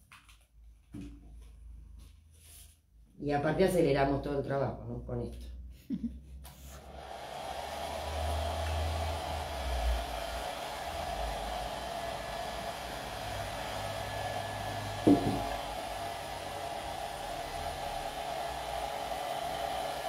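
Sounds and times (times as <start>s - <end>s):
hair dryer blowing: 6.5s - 20.0s.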